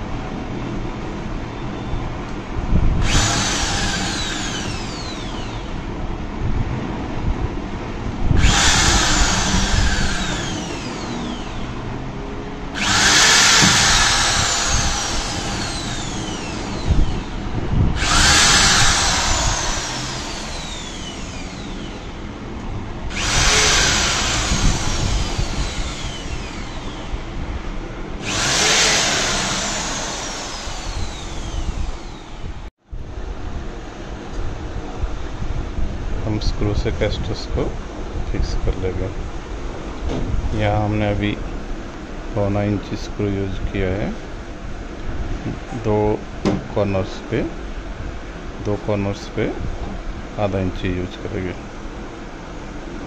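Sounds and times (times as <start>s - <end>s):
electric drill boring into wood: 3.0s - 5.8s, 8.4s - 11.8s, 12.8s - 17.4s, 18.0s - 22.2s, 23.1s - 27.3s, 28.2s - 32.6s.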